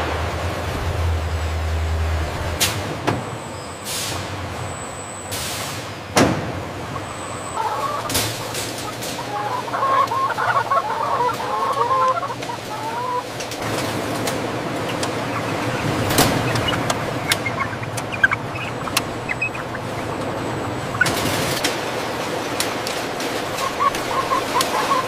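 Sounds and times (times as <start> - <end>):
steady industrial hum: 0.0 - 25.0
chickens clucking: 6.7 - 25.0.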